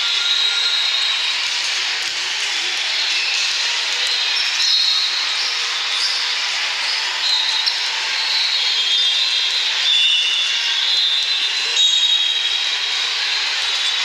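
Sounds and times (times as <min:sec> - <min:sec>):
crowd noise in echoing hall: 0:00.0 - 0:14.0.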